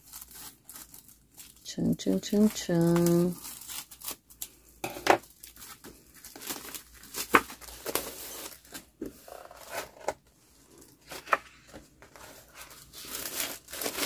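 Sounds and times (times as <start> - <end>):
plastic packaging crinkling: 0.0 - 14.0
paper sheets rustling: 10.8 - 14.0.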